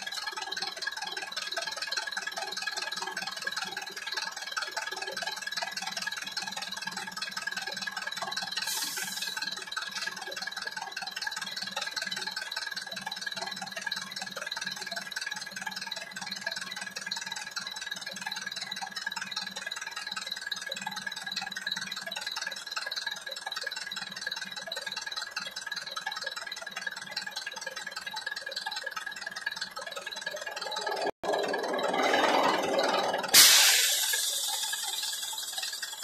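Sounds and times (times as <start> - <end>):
brief hiss: 33.4 - 35.6.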